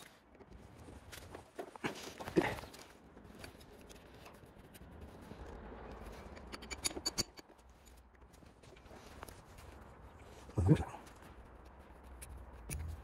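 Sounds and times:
hand tools clicking on metal: 6.2 - 7.6.

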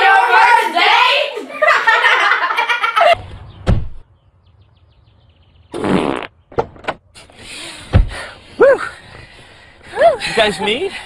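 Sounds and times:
raspy fart sound: 5.7 - 6.5.

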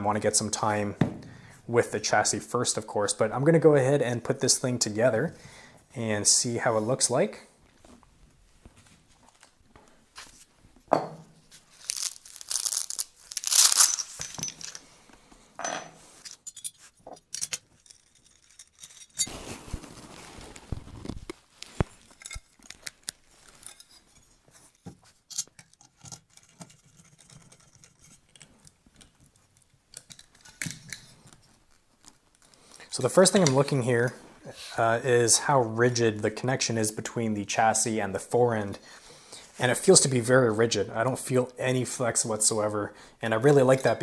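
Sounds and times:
fabric ripping and rustling: 11.6 - 14.2, 19.2 - 22.1
small clicks and knocks of parts: 16.2 - 19.3, 21.6 - 24.1, 24.7 - 32.6
scraping rustle: 17.8 - 24.8.

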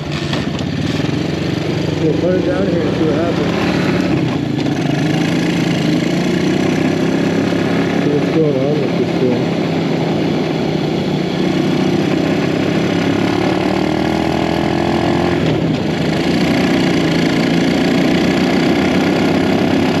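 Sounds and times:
single-cylinder engine running: 0.0 - 20.0.

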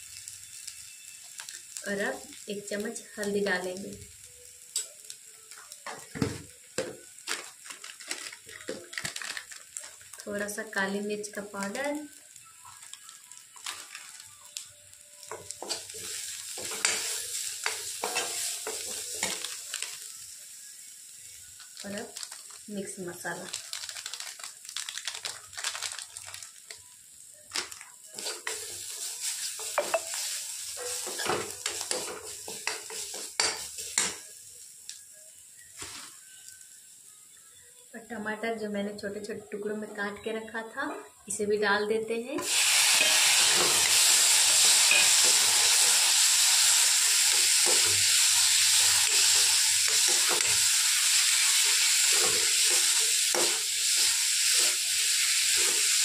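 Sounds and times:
onions frying in oil: 0.0 - 38.1, 42.4 - 56.0
spoon scraping a pan: 15.4 - 19.4.

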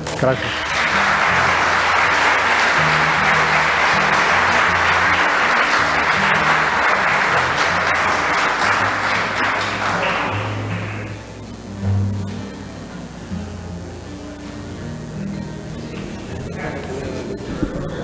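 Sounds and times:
audience applauding: 0.0 - 11.4
background music with bass: 0.0 - 18.0.

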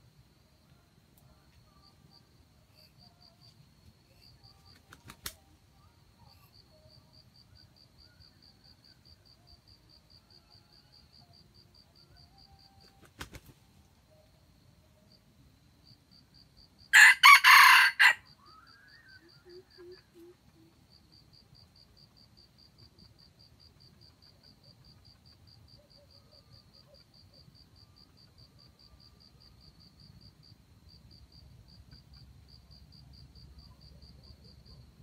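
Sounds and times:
insect chirping: 0.0 - 35.0
rooster crowing: 16.9 - 18.3.

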